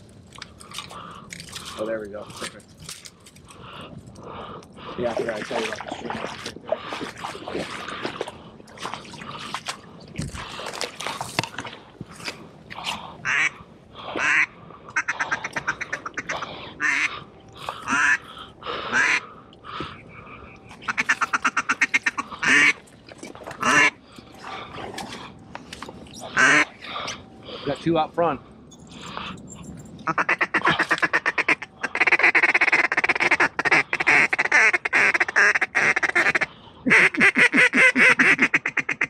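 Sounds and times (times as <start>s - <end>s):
duck quacking: 14.2s - 17.1s, 17.9s - 18.2s, 18.9s - 19.2s, 20.8s - 22.8s, 23.6s - 24.0s, 26.3s - 26.7s, 30.1s - 39.0s.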